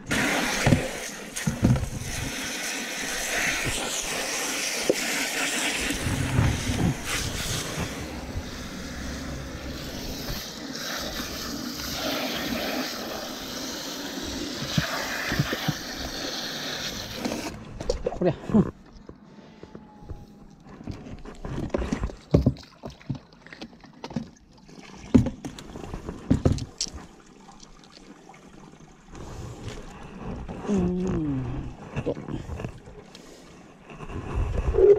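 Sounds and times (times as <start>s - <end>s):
water spraying into plastic cooler: 0.0s - 17.6s
low bumps: 5.8s - 10.6s.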